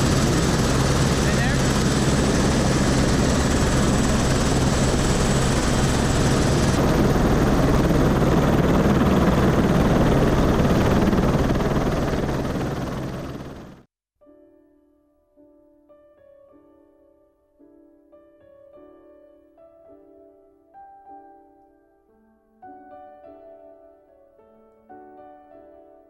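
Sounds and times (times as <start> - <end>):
helicopter rotor and engine: 0.0 - 13.9
soft piano music: 14.2 - 26.0.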